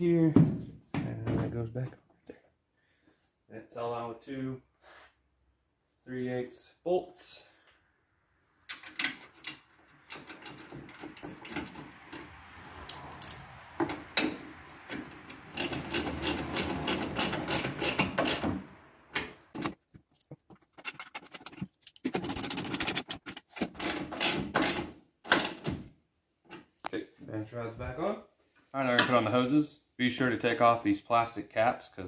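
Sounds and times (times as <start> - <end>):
socket ratchet clicking: 15.2 - 18.5.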